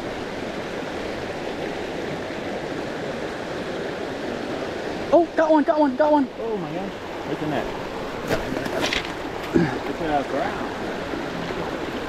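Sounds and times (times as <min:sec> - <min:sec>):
creek rushing over rocks: 0:00.0 - 0:12.0.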